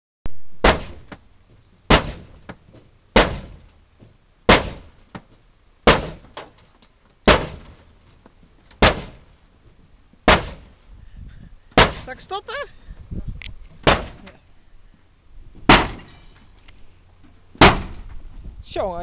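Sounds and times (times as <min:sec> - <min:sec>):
axe striking metal: 0:00.6 - 0:01.2, 0:01.9 - 0:02.4, 0:03.2 - 0:03.6, 0:04.5 - 0:05.0, 0:05.8 - 0:06.3, 0:07.3 - 0:07.8, 0:08.8 - 0:09.2, 0:10.3 - 0:10.7, 0:11.8 - 0:12.1, 0:13.8 - 0:14.3, 0:15.7 - 0:16.5, 0:17.6 - 0:18.1.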